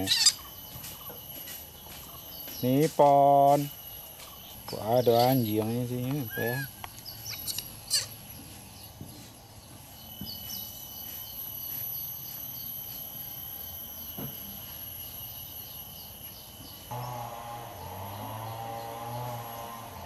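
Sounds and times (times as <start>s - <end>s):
insects trilling: 0.0s - 20.0s.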